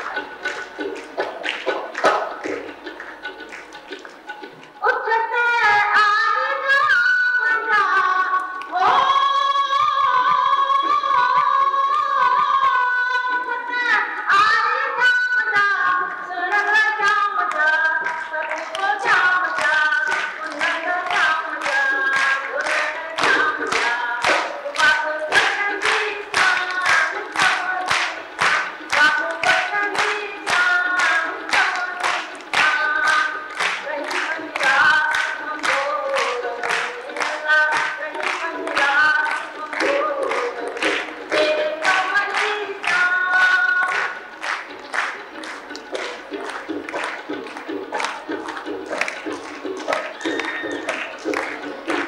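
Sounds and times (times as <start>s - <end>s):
hand clapping: 0.0s - 4.8s, 7.8s - 12.9s, 15.6s - 52.0s
woman singing folk song: 4.8s - 44.3s.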